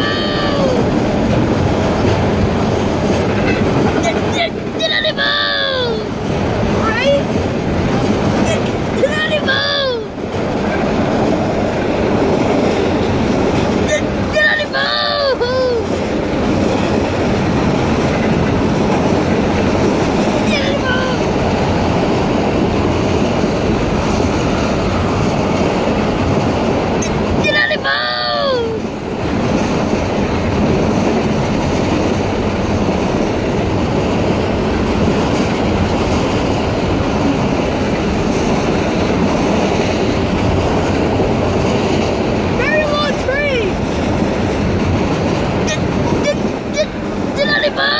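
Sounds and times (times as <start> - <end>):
freight train rumbling on rails: 0.0 - 47.9.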